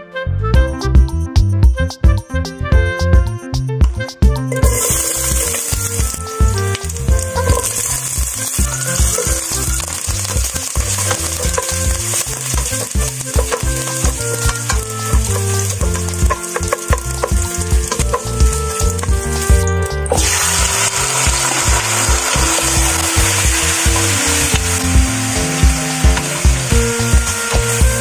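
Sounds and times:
background music with steady beat: 0:00.0 - 0:28.0
vegetables sizzling in a pot: 0:04.6 - 0:28.0
spatula stirring in a pot: 0:07.3 - 0:19.1.

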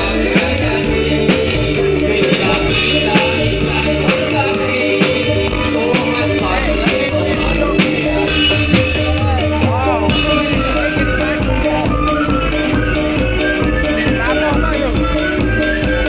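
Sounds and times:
drum kit and cymbals beat: 0:00.0 - 0:16.0
loud live dance music: 0:00.0 - 0:16.0
repeated melodic notes: 0:00.0 - 0:16.0.

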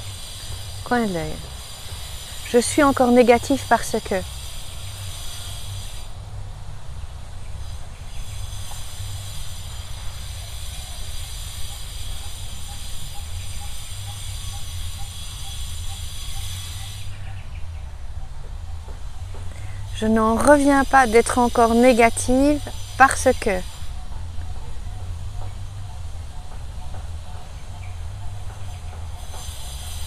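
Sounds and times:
shrill insect buzz: 0:00.0 - 0:06.1, 0:19.6 - 0:23.8.

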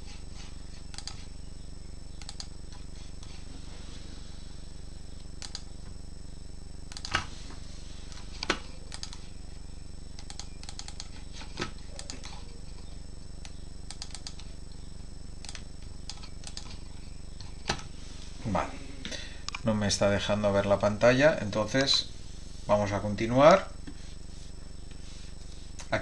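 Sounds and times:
low electrical hum: 0:00.0 - 0:26.0
computer keys and mouse clicking: 0:00.9 - 0:01.3, 0:02.2 - 0:03.3, 0:05.4 - 0:05.7, 0:06.9 - 0:07.3, 0:08.1 - 0:09.2, 0:10.2 - 0:12.4, 0:13.4 - 0:14.5, 0:15.4 - 0:16.8.

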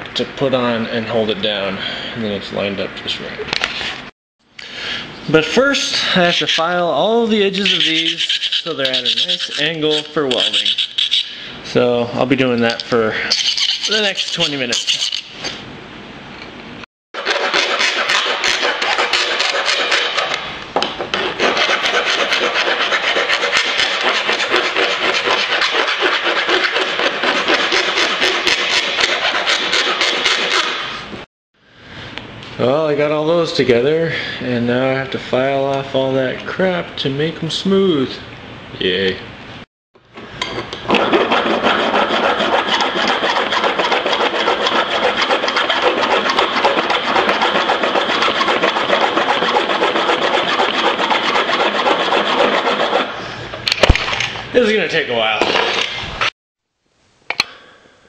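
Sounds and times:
hand file rasping on metal: 0:07.4 - 0:11.3, 0:13.3 - 0:15.3, 0:17.2 - 0:20.4, 0:21.1 - 0:30.8, 0:40.9 - 0:53.2.

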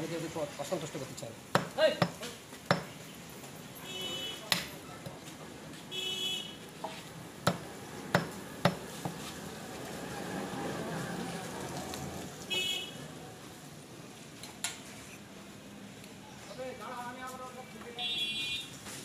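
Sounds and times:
cleaver chopping on wooden block: 0:01.5 - 0:03.0, 0:07.4 - 0:09.2.

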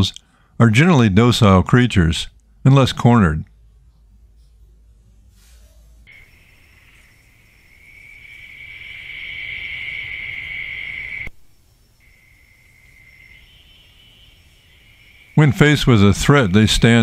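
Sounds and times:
night insects trilling: 0:06.1 - 0:17.0.

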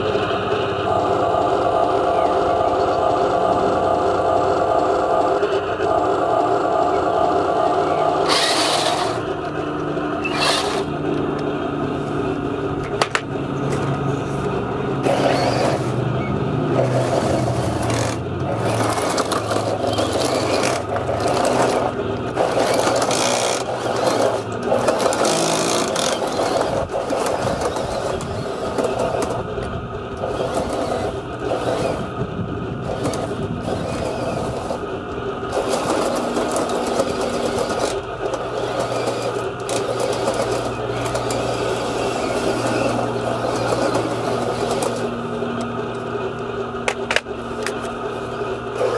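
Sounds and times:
small electric motors whirring: 0:05.4 - 0:12.2, 0:13.6 - 0:48.9
tracks scraping on stones: 0:08.3 - 0:09.3, 0:10.2 - 0:10.9, 0:13.7 - 0:16.0, 0:16.8 - 0:29.4, 0:35.5 - 0:45.1.

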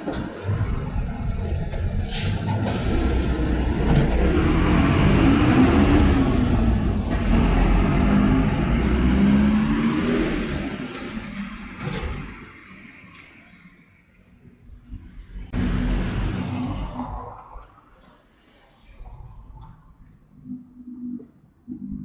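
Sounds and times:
bus diesel engine accelerating: 0:00.0 - 0:12.4
air brakes hissing: 0:02.0 - 0:03.8.

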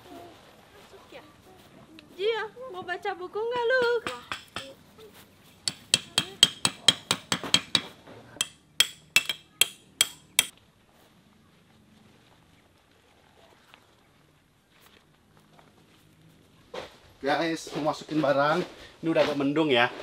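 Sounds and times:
tent peg hammered into ground: 0:03.8 - 0:04.8, 0:05.6 - 0:10.5.

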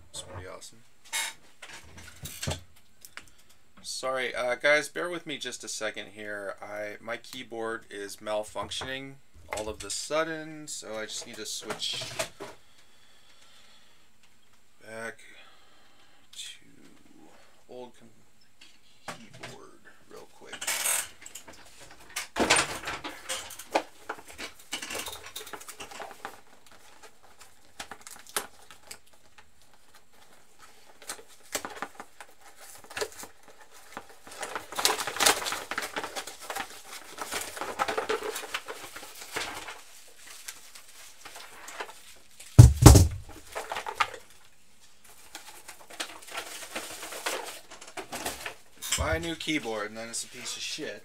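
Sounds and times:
rustling: 0:18.7 - 0:51.0
heavy thump: 0:42.6 - 0:43.4.

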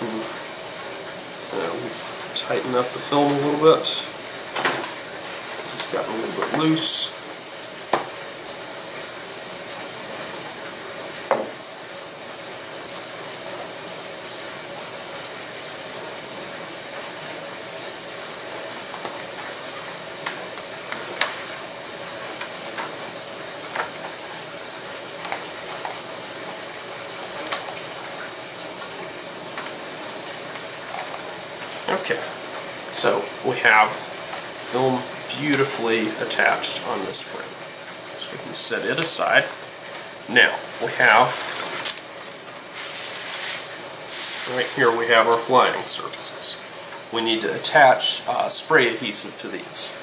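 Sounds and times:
plastic film rustling and crinkling: 0:00.1 - 0:32.7, 0:40.8 - 0:45.8.

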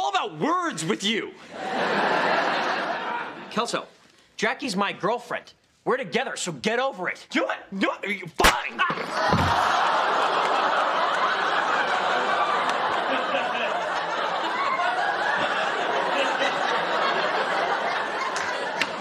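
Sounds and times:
studio audience laughing: 0:01.4 - 0:03.8, 0:09.0 - 0:19.0.

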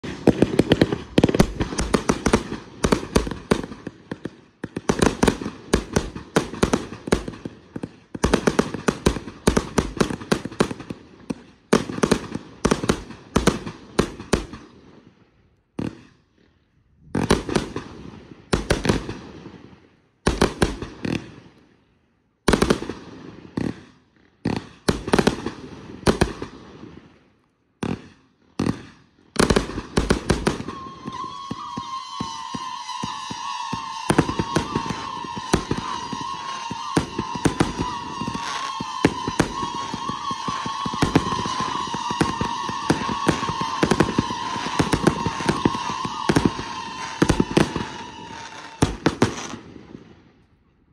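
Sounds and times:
fireworks launching and bursting: 0:00.0 - 0:50.5.

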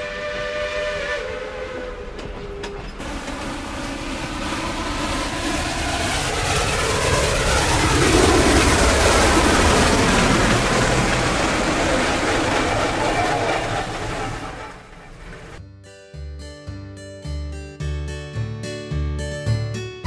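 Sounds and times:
steam locomotive whistle: 0:00.0 - 0:02.9
running train rushing: 0:00.0 - 0:15.6.

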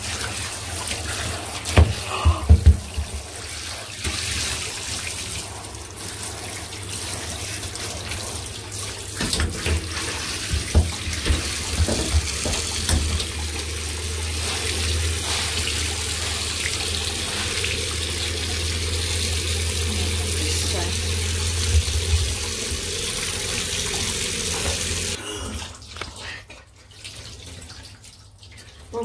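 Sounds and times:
tap water running into bathtub: 0:00.0 - 0:29.0
knocks and splashes: 0:01.6 - 0:04.4, 0:09.1 - 0:13.5, 0:21.3 - 0:25.2.

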